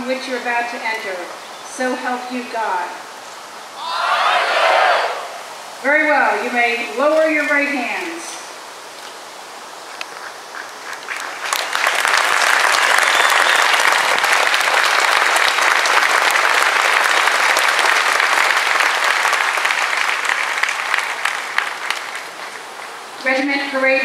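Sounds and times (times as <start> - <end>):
crowd applauding: 10.8 - 23.0.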